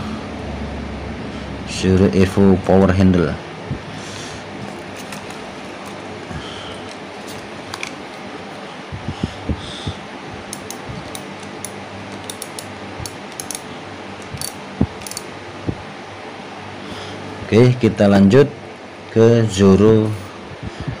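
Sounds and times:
steady background hum: 0.0 - 21.0
metal fishing reel clicking: 10.5 - 13.6, 14.2 - 15.3.

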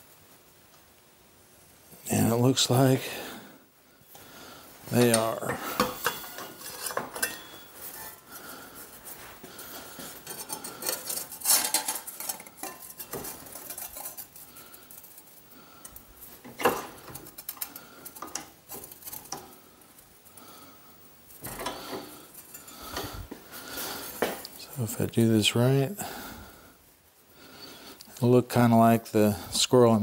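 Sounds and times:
metal clinking and scraping: 4.9 - 20.1, 21.3 - 24.6.

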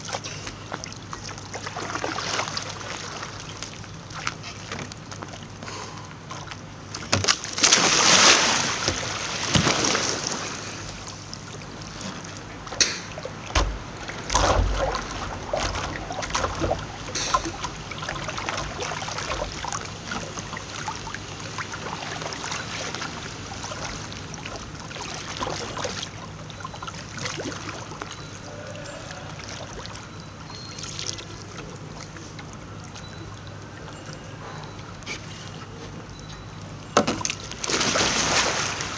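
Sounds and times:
water splashing around kayak: 0.0 - 5.6, 6.4 - 28.1, 37.0 - 38.9
water lapping: 0.0 - 36.2
paddle knocks: 13.5 - 17.7.

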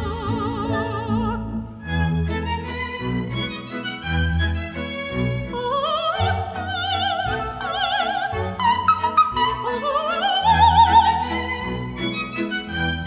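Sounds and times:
operatic soprano singing: 0.0 - 1.8, 5.4 - 12.7
symphony orchestra: 0.0 - 13.0.

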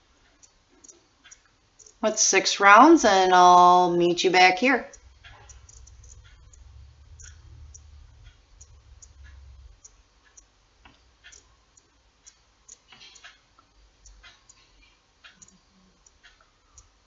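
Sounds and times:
low handling rumble: 5.0 - 9.8.

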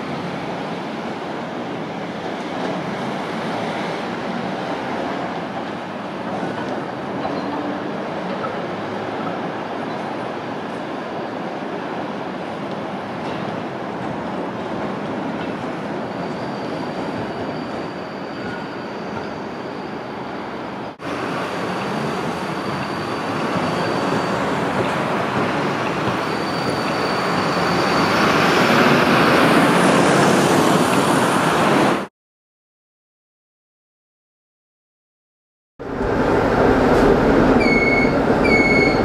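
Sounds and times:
tram passing close: 0.0 - 32.1, 35.8 - 39.0
tram rolling on track: 0.0 - 32.1, 35.8 - 39.0
road traffic: 18.9 - 32.1, 35.8 - 39.0.

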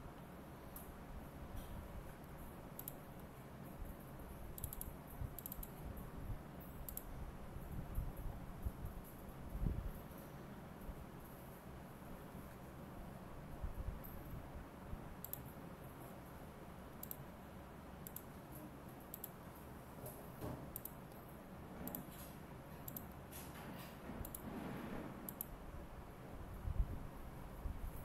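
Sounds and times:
mouse and keyboard clicks: 2.8 - 3.0, 4.6 - 5.8, 6.9 - 7.1, 15.2 - 15.5, 17.0 - 17.2, 18.0 - 18.4, 19.1 - 19.4, 20.7 - 21.2, 21.9 - 23.2, 24.2 - 24.5, 25.3 - 25.6.

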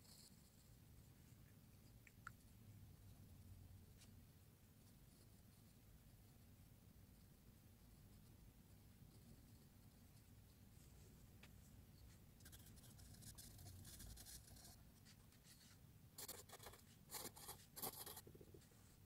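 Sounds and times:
pencil scratching on paper: 12.1 - 18.4.

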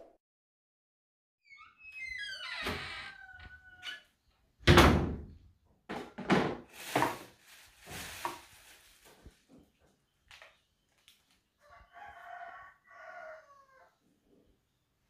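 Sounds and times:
wooden cupboard door banging shut: 4.6 - 5.3.

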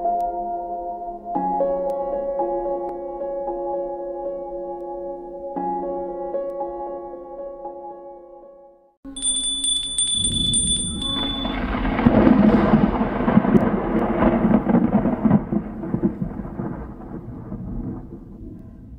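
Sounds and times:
rolling thunder: 10.2 - 18.9
crackling clicks: 10.6 - 18.7
rain: 10.7 - 18.9.

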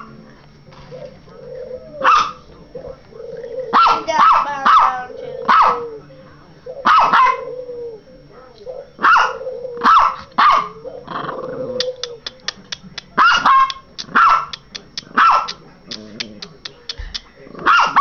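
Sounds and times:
small dog yapping: 2.0 - 2.4, 3.7 - 5.9, 6.8 - 7.5, 9.0 - 10.8, 13.2 - 16.6.

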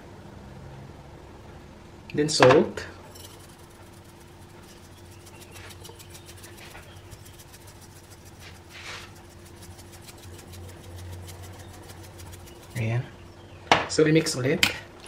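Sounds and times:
steady low hum: 0.0 - 15.0
soft rustles: 3.1 - 12.9
salt shaker ticking: 3.1 - 13.0.

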